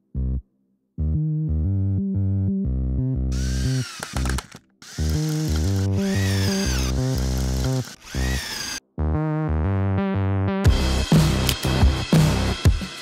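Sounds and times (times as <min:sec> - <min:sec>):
cordless drill whirring: 0:03.4 - 0:08.8.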